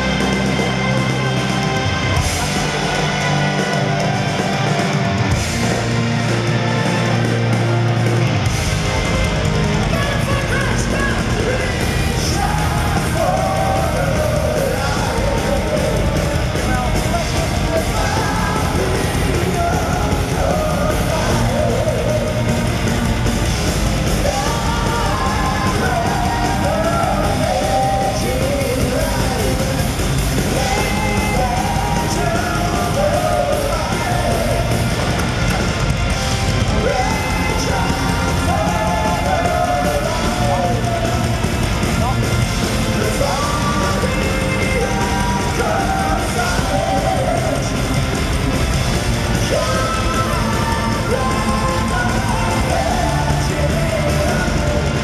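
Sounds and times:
live metal band playing: 0.0 - 55.0
person singing: 49.4 - 55.0.

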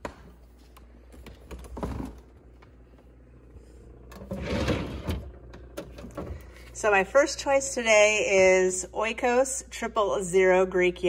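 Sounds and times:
low steady hum: 0.0 - 11.0
plastic drawer sliding scrape: 4.2 - 5.2.

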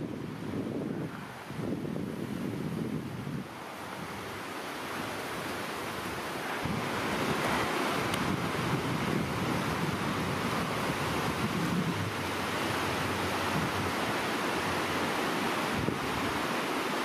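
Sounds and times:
waves breaking on shore: 0.0 - 17.0
wind rumble on microphone: 0.0 - 17.0.

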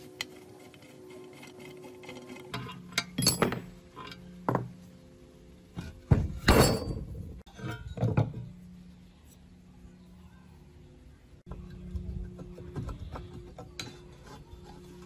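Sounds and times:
metal knocks and clinks: 2.9 - 4.7, 6.2 - 8.5.

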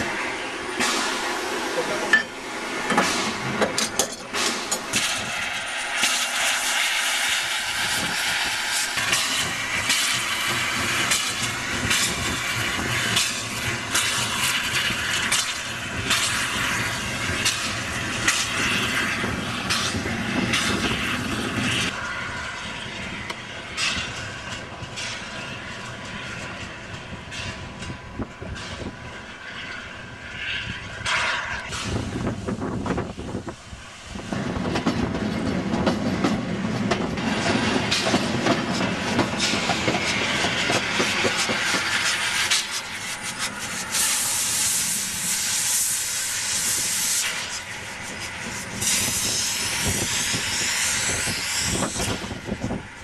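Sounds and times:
train rail noise: 0.0 - 53.0
metallic clanks and knocks: 2.1 - 5.0.

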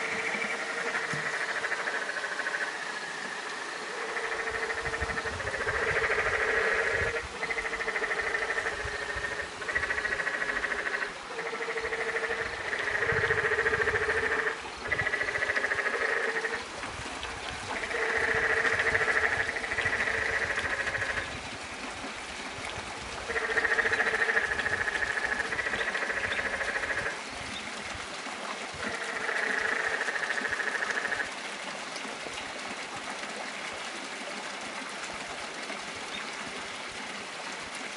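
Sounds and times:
frogs calling: 0.0 - 16.7, 17.6 - 21.4, 23.2 - 27.2, 28.8 - 31.3
mountain stream rushing: 0.0 - 37.9.

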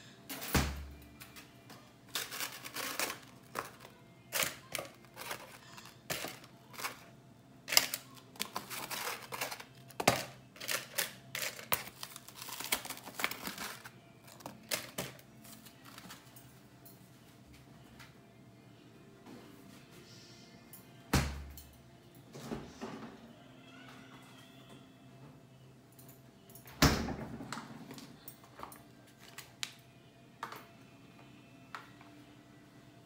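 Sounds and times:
paper liner crinkling: 2.1 - 7.0, 7.7 - 16.2.

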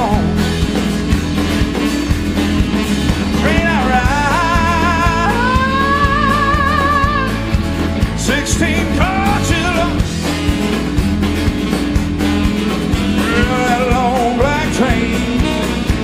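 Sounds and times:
rock band playing: 0.0 - 16.0
singer holding wordless notes: 3.2 - 7.6, 8.2 - 10.2, 13.0 - 16.0.

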